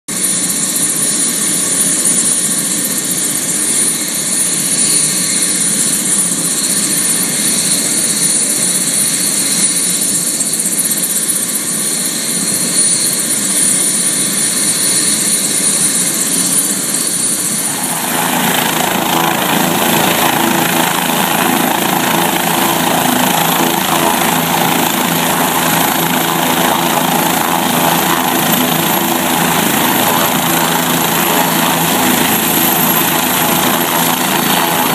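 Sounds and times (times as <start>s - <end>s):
helicopter turbine whine: 0.1s - 34.9s
helicopter rotor thrum: 16.4s - 34.9s.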